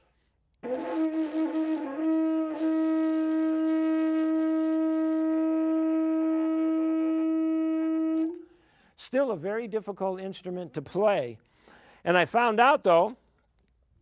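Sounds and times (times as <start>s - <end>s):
horn held note: 0.6s - 8.6s
breathy hiss of air: 11.5s - 12.1s.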